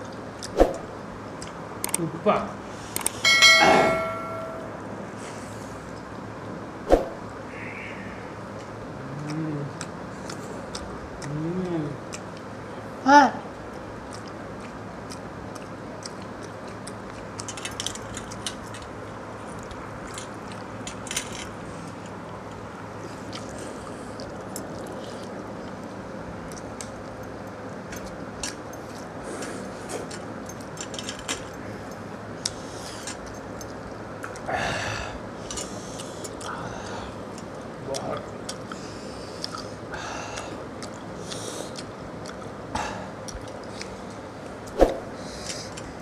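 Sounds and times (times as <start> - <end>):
steady low hum: 0.0 - 46.0
chewing and lip smacks: 8.5 - 12.8, 13.6 - 30.8, 31.4 - 34.5, 37.2 - 39.8, 40.4 - 44.8.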